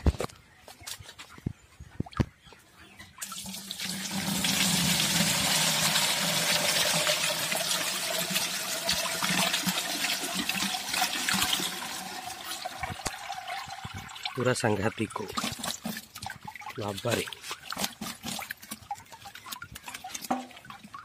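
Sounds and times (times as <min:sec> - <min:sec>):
water gushing onto ground: 0:03.2 - 0:21.0.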